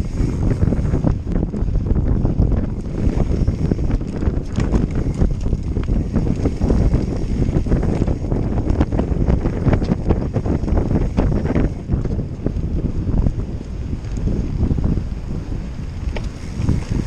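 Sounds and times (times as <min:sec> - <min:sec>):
bike rattling: 0:00.0 - 0:17.0
wind buffeting microphone: 0:00.0 - 0:17.0
tyres rolling on dirt: 0:02.6 - 0:14.3.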